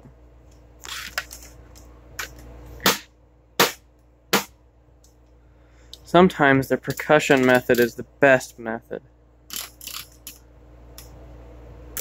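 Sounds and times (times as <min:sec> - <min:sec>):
handling noises: 0:00.0 - 0:02.9
faint steady hum: 0:00.0 - 0:12.0.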